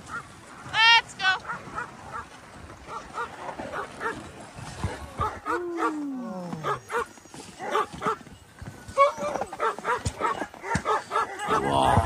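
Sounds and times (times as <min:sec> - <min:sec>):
dogs barking and yipping: 0:00.0 - 0:12.0
dog long falling cry: 0:05.5 - 0:06.8.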